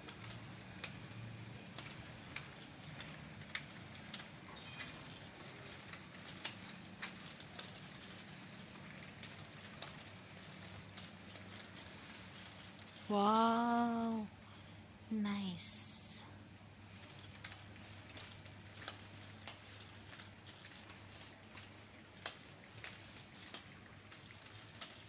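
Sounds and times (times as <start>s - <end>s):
steady low hum: 5.6s - 25.0s.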